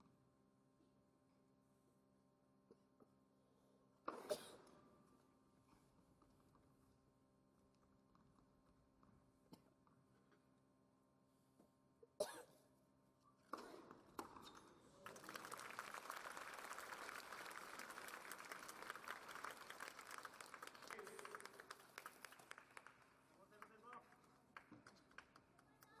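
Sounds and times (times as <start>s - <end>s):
crowd applauding: 15.0s - 26.0s.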